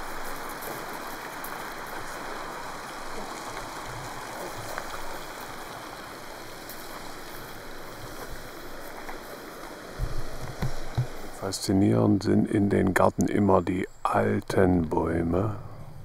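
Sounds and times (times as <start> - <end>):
steady rushing hiss: 0.0 - 16.0.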